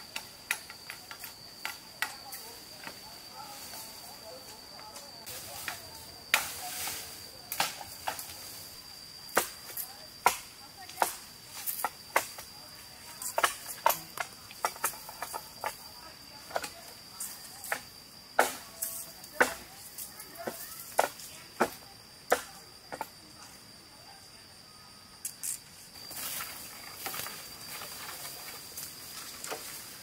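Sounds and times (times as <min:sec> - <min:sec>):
bamboo being chopped: 0:05.5 - 0:06.8, 0:07.5 - 0:08.3, 0:09.3 - 0:12.4, 0:18.4 - 0:18.7, 0:19.3 - 0:19.8.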